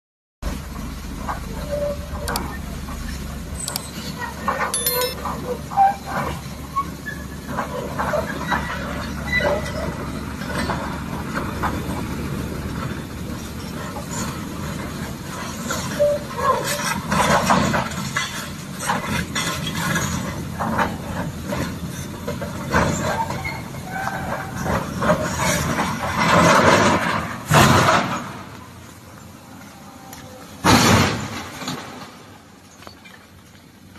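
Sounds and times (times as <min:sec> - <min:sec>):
excavator diesel engine running: 0:00.4 - 0:15.9
short knocks and clinks: 0:03.6 - 0:04.0, 0:04.7 - 0:05.2.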